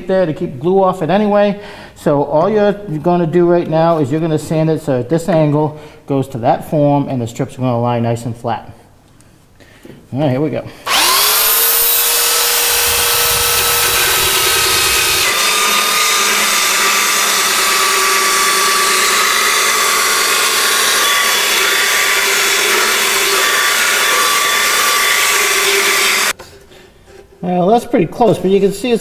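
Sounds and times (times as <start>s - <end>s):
belt sander whining: 10.8s - 26.4s.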